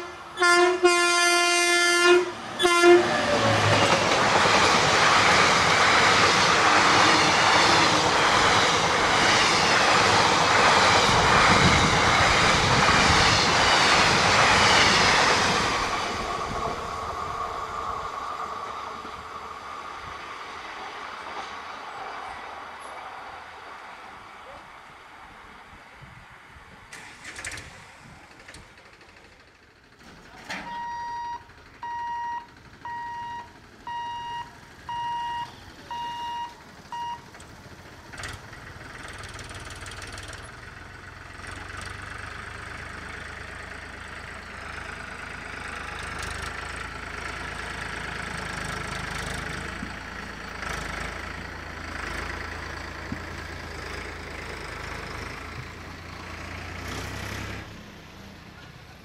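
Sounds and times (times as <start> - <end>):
road traffic passing: 0.0 - 59.0
tractor engine running: 26.9 - 59.0.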